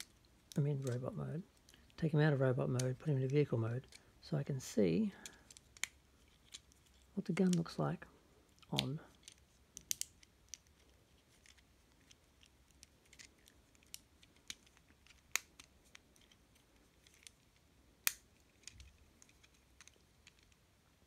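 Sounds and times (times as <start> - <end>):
faint handling: 0.0 - 21.0
sharp plastic snaps: 5.2 - 7.7, 8.6 - 20.6
small plastic clicks: 5.2 - 7.7, 8.6 - 20.7.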